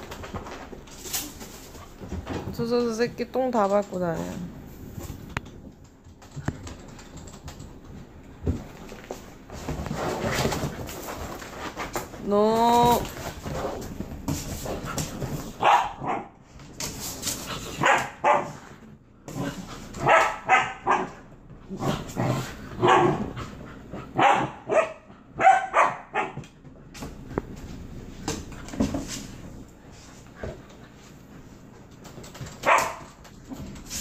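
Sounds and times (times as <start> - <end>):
dog barking and yipping: 15.6 - 16.4, 17.8 - 18.6, 20.0 - 21.2, 22.8 - 23.3, 24.2 - 26.4, 32.6 - 33.1.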